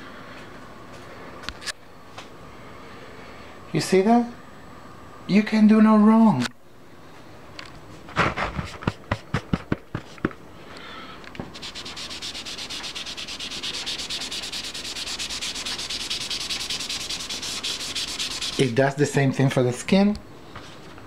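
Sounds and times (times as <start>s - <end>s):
cotton ball scrubbing on paper: 11.5s - 18.8s.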